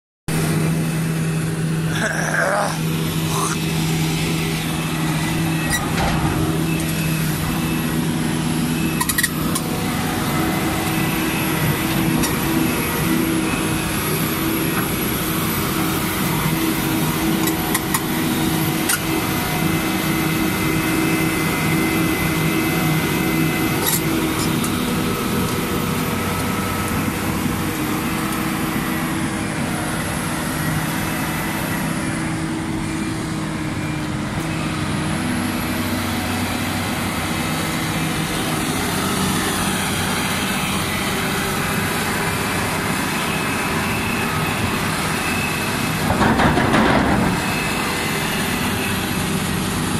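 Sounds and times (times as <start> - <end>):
excavator diesel engine running: 0.3 - 49.9.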